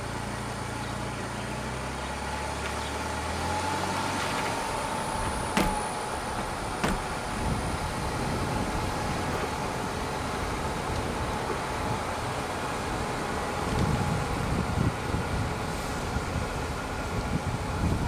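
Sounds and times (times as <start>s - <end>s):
engine and tyre hum: 0.0s - 18.0s.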